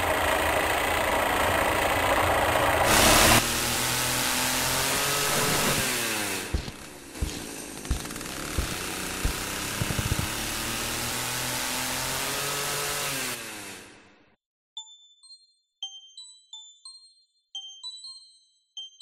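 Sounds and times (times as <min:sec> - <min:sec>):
machinery engine running: 0:00.0 - 0:14.2
knocks: 0:06.6 - 0:10.4
high bell-like music notes: 0:14.8 - 0:19.0.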